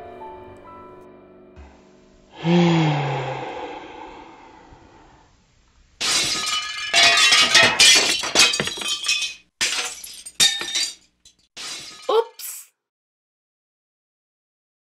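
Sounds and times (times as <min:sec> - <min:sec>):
glass breaking clatter: 0:06.0 - 0:12.2.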